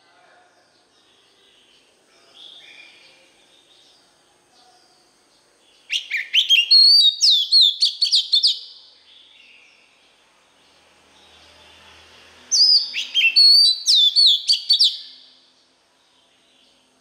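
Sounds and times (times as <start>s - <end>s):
bird singing whistles: 5.9s - 8.8s, 12.6s - 15.3s.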